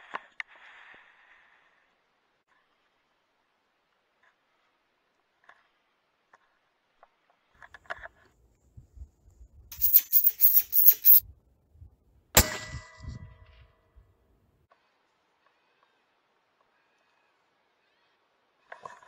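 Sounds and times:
scraping rubs: 9.8 - 11.2.

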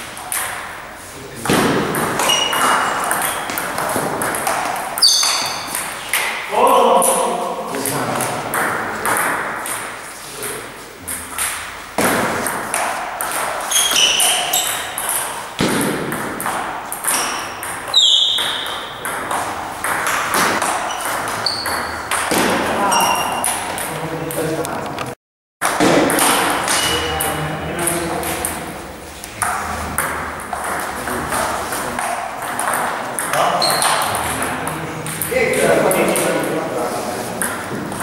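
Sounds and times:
shoes squeaking on floor: 2.1 - 4.1, 4.9 - 6.3, 13.4 - 15.4, 17.0 - 23.8, 26.7 - 27.4, 33.4 - 34.3.

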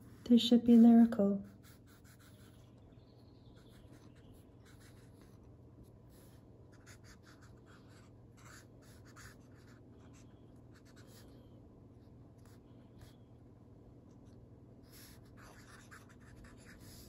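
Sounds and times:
low steady hum: 0.0 - 17.0
felt-tip pen scratching on paper: 1.4 - 2.6, 3.6 - 5.4, 6.1 - 11.2, 14.9 - 17.0.

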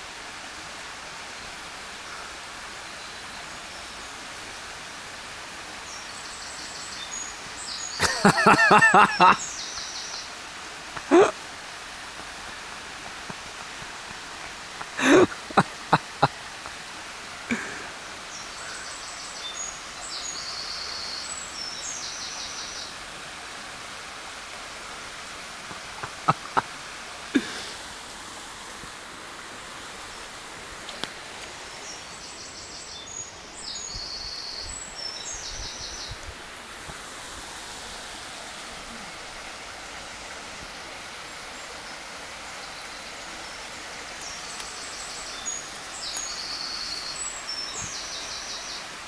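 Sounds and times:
stream rushing over stones: 0.0 - 49.0
songbird singing: 2.7 - 4.2, 5.8 - 10.4, 17.5 - 23.0, 30.9 - 36.4, 40.6 - 49.0.

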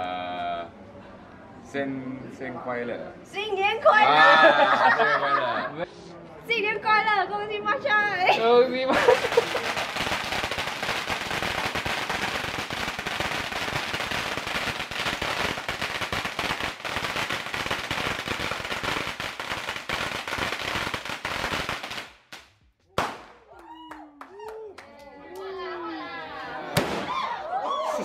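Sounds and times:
firecrackers crackling: 8.9 - 23.5, 26.7 - 27.4
loud firecracker bang: 23.0 - 23.4, 26.7 - 27.3.

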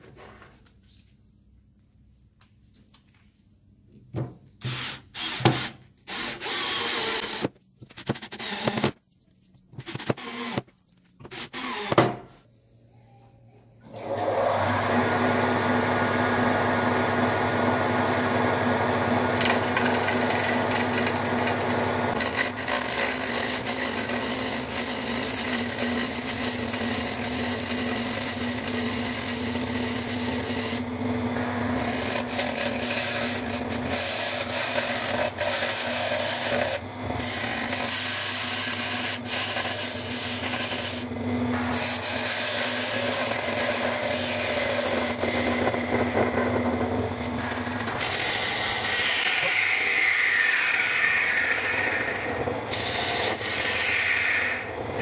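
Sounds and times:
power drill driving screws: 4.6 - 9.0, 9.8 - 12.0
wood lathe motor hum: 14.2 - 55.0.

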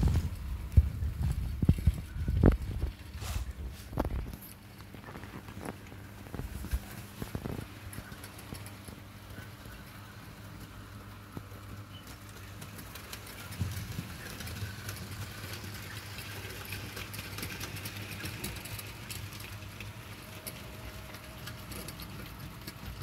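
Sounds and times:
wheels clicking over rail joints: 11.5 - 23.0
model train motor hum: 12.3 - 23.0.

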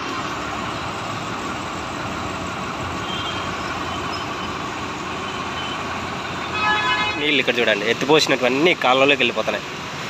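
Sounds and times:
tractor engine running: 0.0 - 10.0.

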